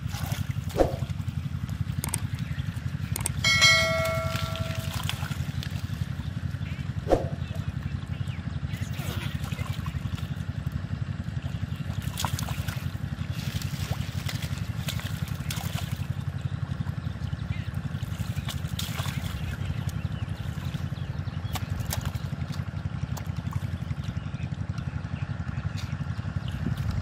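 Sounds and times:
small engine droning: 0.0s - 27.0s
water trickling: 3.4s - 6.1s
hands splashing water: 3.7s - 6.0s, 11.9s - 16.1s, 18.0s - 20.8s.

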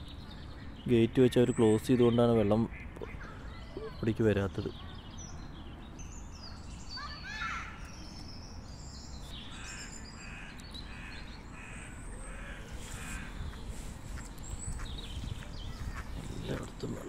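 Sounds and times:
crows cawing: 9.5s - 13.6s.

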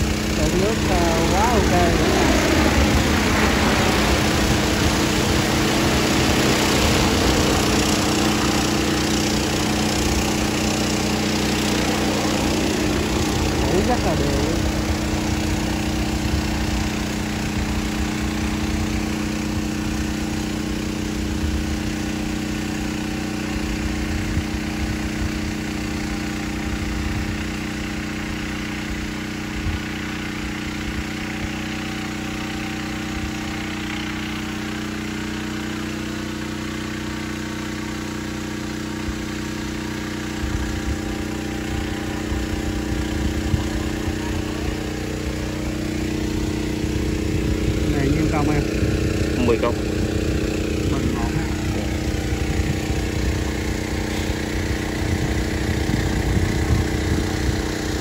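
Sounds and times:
drone rotors humming: 0.0s - 22.4s, 39.6s - 58.0s.

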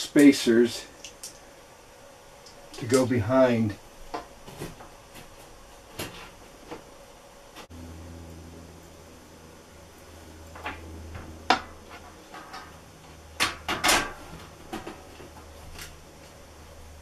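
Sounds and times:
low hum: 7.0s - 17.0s.

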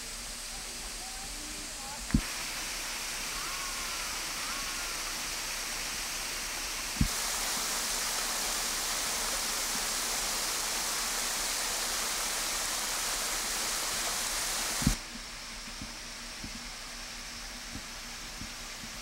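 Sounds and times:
steady rushing hiss of water: 0.0s - 19.0s.

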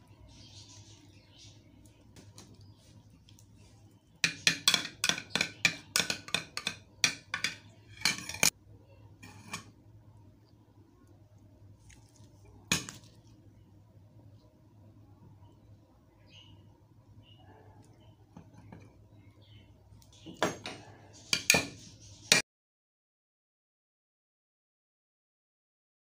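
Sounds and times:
metal spoon clinking on ceramic bowl: 4.2s - 8.5s.

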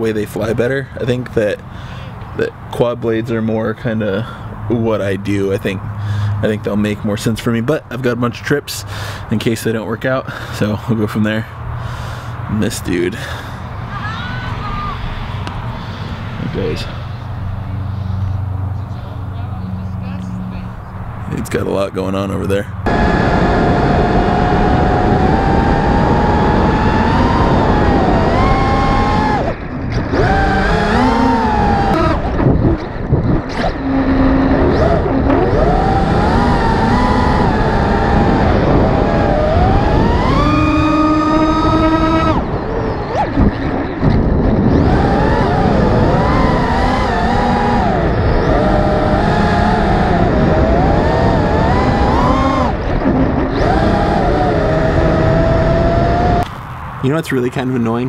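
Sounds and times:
wind rush: 11.6s - 21.7s, 22.7s - 57.2s
drone motors and propellers whining: 11.9s - 19.0s, 22.8s - 57.1s.

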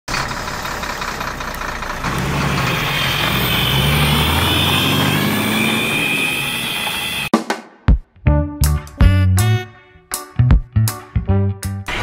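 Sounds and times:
truck engine running: 0.1s - 7.3s.

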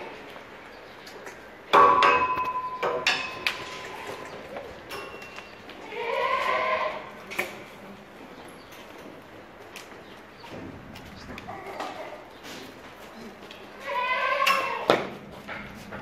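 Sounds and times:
metallic clang ringing: 1.7s - 3.9s, 4.9s - 5.6s
goat bleating: 5.8s - 7.2s, 13.8s - 14.9s.

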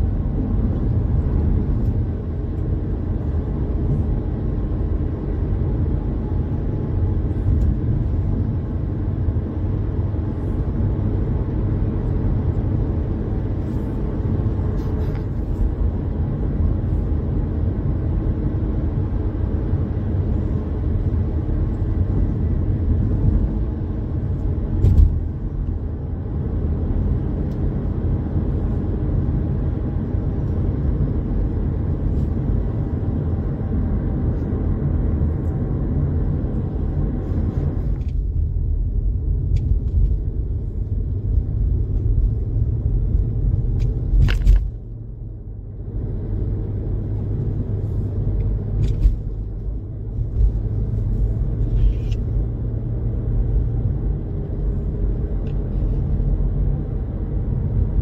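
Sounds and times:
road and tyre noise in car: 0.0s - 58.0s
short thump: 24.8s - 25.2s.

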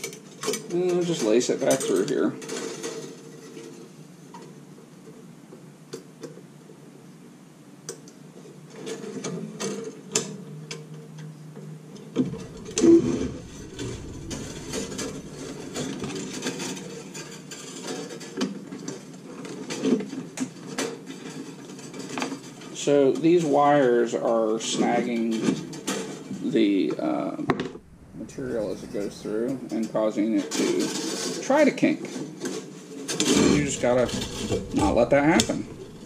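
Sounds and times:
wire scraping against metal: 12.2s - 17.7s, 33.2s - 36.0s.

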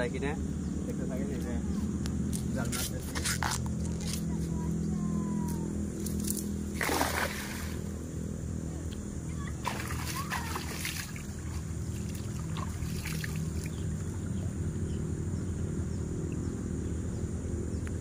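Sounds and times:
low motor hum: 0.0s - 18.0s
water splashing and dripping: 6.8s - 7.9s, 9.4s - 14.2s.

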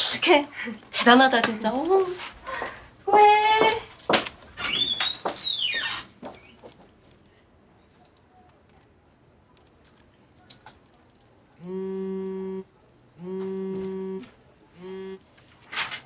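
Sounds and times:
mobile phone vibrating: 11.6s - 12.6s, 13.2s - 15.2s.

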